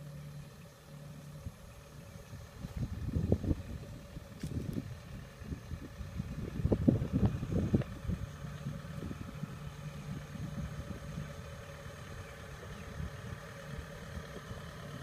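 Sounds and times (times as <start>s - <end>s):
diesel engine low hum: 0.0s - 15.0s
dull low thumps: 2.4s - 9.5s.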